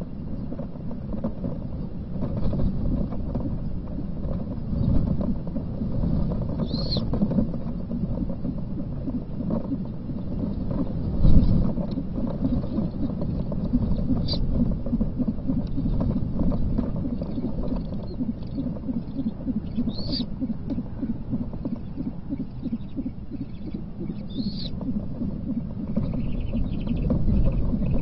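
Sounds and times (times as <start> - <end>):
steady low rumble: 0.0 - 28.0
high chirp: 17.3 - 21.1, 21.7 - 28.0.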